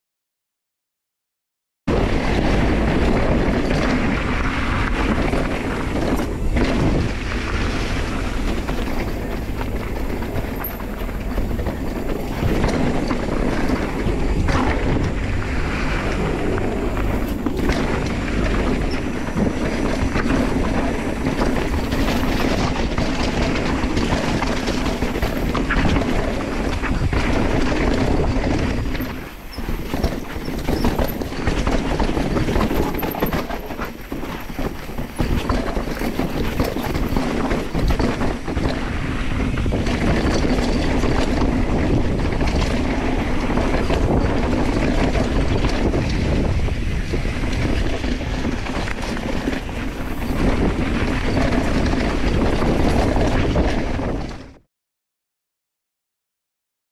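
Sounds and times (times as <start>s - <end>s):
bike rattling and clicking: 1.9s - 54.6s
bike tyres rolling over dirt: 1.9s - 54.6s
wind on microphone: 1.9s - 54.6s.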